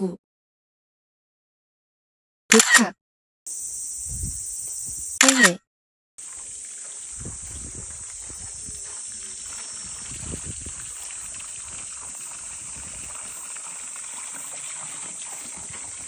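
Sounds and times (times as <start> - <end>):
water trickling into stone basin: 6.2 - 16.0.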